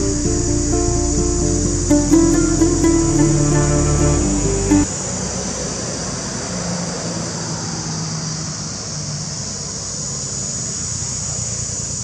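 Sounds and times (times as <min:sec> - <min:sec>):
faint steady hum: 0:00.0 - 0:04.9
low rumble: 0:00.0 - 0:04.9
high-pitched hiss: 0:00.0 - 0:05.2.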